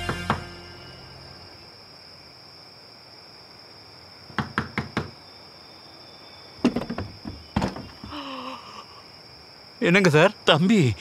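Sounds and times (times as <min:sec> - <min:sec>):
knuckles knocking on wooden door: 0:04.3 - 0:05.2.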